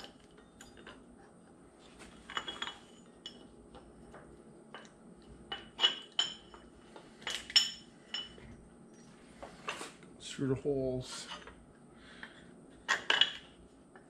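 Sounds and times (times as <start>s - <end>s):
metallic clinks of steel parts: 0.0s - 1.0s, 2.3s - 3.4s.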